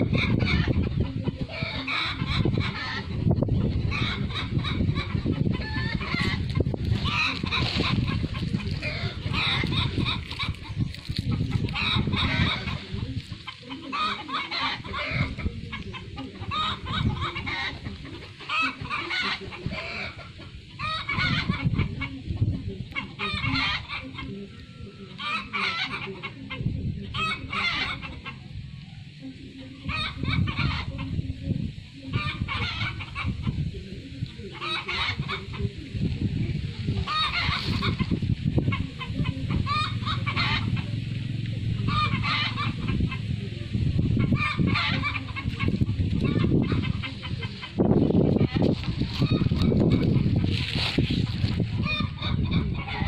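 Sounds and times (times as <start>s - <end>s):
low rumbling noise: 0.0s - 14.0s, 35.1s - 53.0s
chickens clucking: 0.0s - 53.0s.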